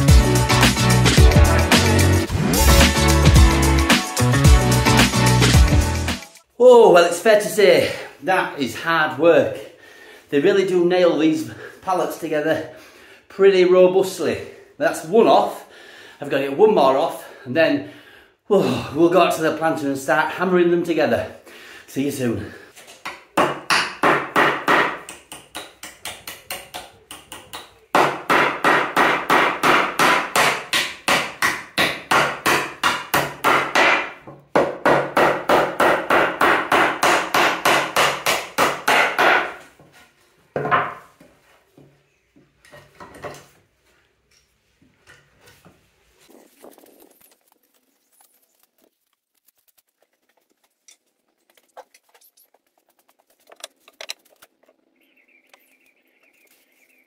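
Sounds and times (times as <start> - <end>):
hammer driving nails into wood: 23.0 - 39.6.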